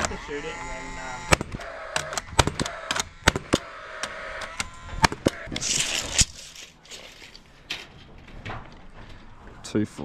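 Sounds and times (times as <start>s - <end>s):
faint whine: 0.0s - 6.6s
nail gun firing: 1.3s - 6.4s.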